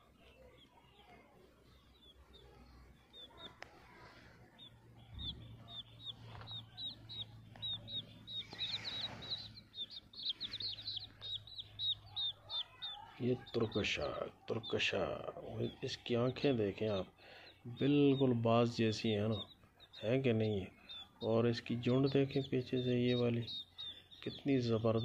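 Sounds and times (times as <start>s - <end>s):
chicks peeping: 0.0s - 25.0s.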